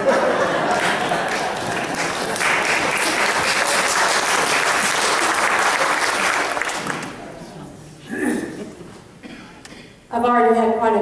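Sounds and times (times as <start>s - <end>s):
congregation applauding: 0.0s - 7.2s.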